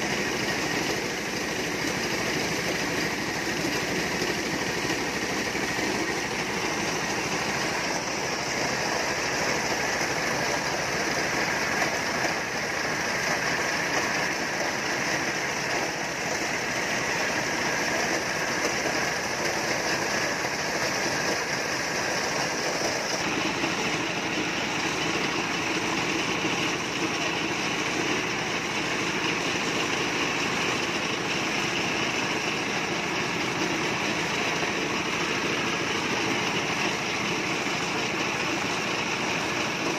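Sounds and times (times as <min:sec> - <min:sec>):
corn sheller engine and drum running: 0:00.0 - 0:39.9.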